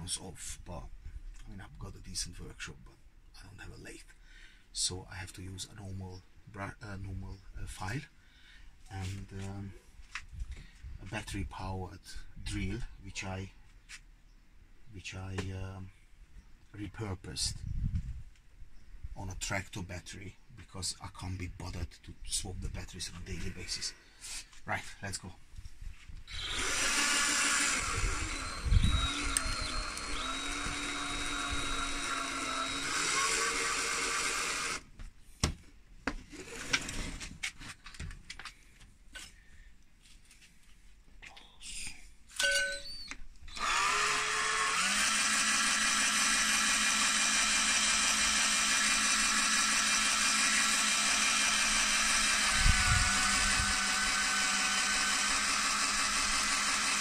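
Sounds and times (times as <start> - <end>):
battery drill spinning: 26.3 - 34.8, 42.8 - 57.0.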